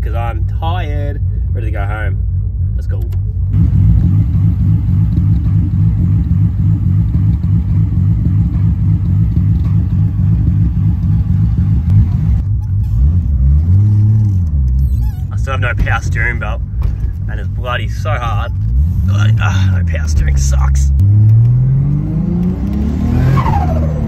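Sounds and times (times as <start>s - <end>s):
car engine idling: 0.0s - 21.2s
car engine from inside moving car: 0.2s - 24.0s.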